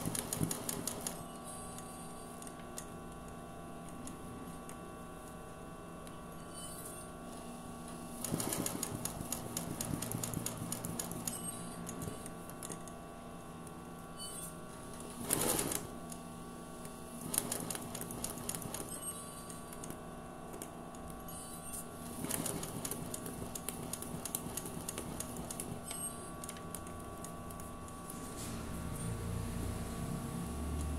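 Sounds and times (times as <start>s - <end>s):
sewing machine needle ticking: 0.0s - 1.2s, 8.2s - 12.8s
sewing machine hum: 0.0s - 1.3s, 8.1s - 12.8s, 14.8s - 16.2s, 17.1s - 19.9s, 21.9s - 30.9s.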